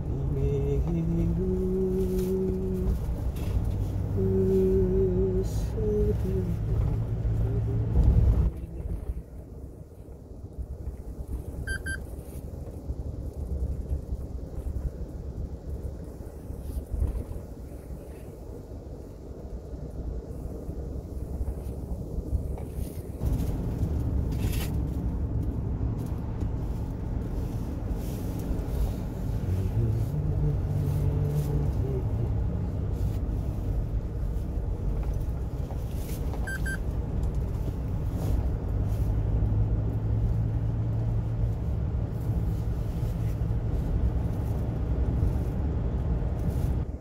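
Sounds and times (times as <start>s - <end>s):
truck engine and tyre noise: 0.0s - 47.0s
short high beep: 11.7s - 12.0s, 36.5s - 36.8s.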